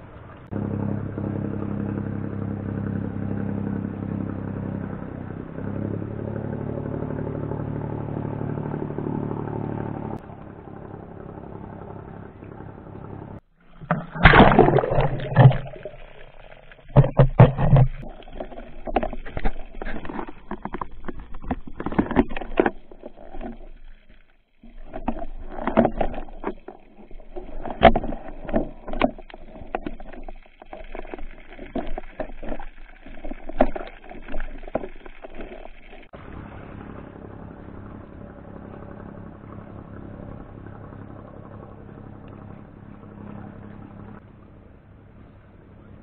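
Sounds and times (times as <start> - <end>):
steady water rush: 0.0 - 0.6, 12.3 - 46.0
muffled underwater knocks: 16.8 - 23.7, 24.8 - 35.6.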